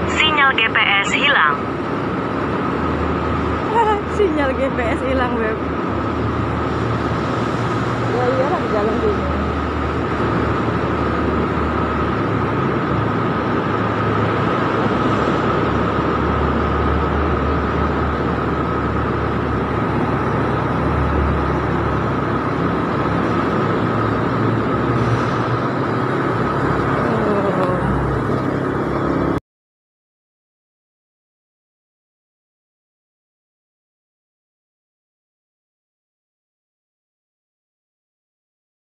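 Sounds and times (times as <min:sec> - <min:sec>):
steady high whine: 0:00.0 - 0:29.4
surrounding traffic: 0:00.0 - 0:29.4
wind and road noise: 0:00.0 - 0:29.4.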